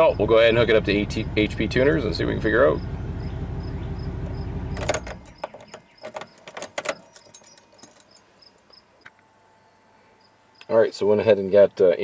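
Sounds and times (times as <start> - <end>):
truck engine idling: 0.0 - 8.3
keys jingling and clicking: 4.8 - 8.6.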